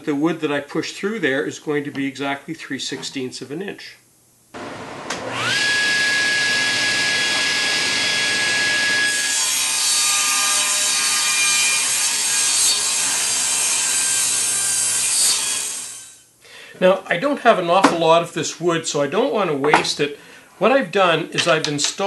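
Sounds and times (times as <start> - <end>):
table saw motor whine: 4.6 - 9.4.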